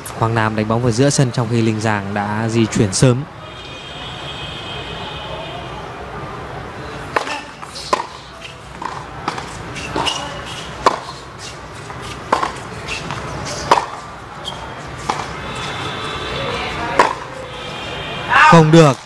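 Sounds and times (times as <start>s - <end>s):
tennis ball struck by rackets: 7.0s - 15.4s, 16.8s - 17.4s
tennis ball bouncing on hard court: 7.0s - 15.9s, 16.7s - 17.4s.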